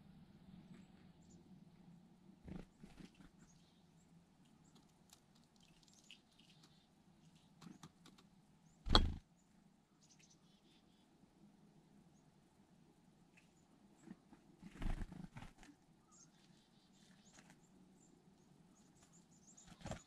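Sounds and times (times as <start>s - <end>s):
faint high bird chirps: 5.6s - 7.8s, 8.6s - 11.2s, 16.0s - 20.0s.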